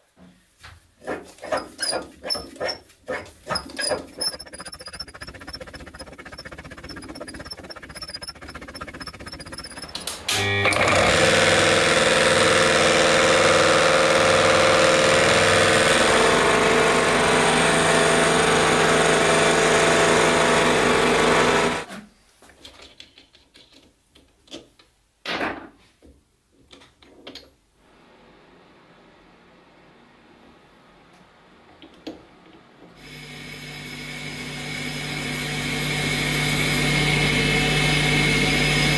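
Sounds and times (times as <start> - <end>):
metal lathe running: 3.4 - 21.8.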